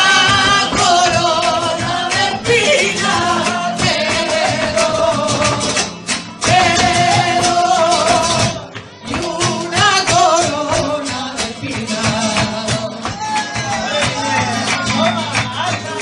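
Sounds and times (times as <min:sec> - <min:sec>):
flamenco guitar: 0:00.0 - 0:16.0
handclaps: 0:08.4 - 0:16.0.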